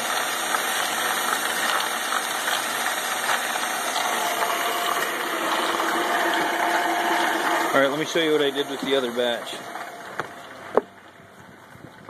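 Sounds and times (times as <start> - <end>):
ball mill whirring: 0.0 - 12.0.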